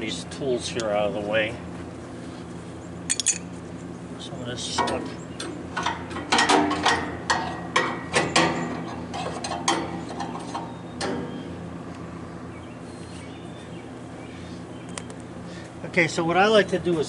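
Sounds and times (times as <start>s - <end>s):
metal tools clinking: 3.1s - 3.5s.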